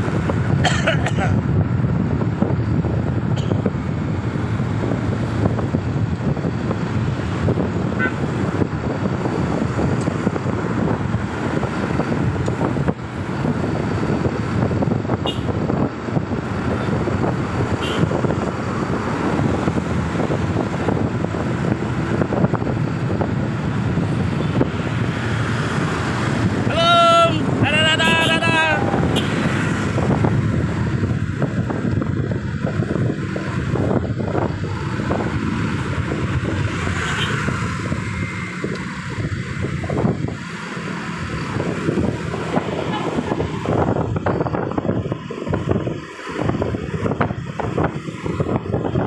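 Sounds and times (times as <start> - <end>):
traffic road noise: 0.0 - 49.0
wind buffeting microphone: 0.0 - 49.0
person calling out: 26.6 - 29.1.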